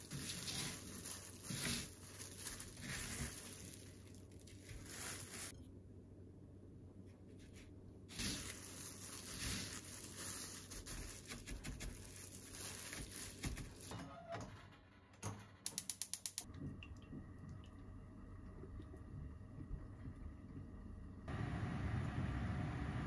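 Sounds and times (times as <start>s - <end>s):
fish pressed into breadcrumbs rustling: 0.0s - 5.6s, 7.4s - 13.9s
gas stove igniter clicking: 15.6s - 16.5s.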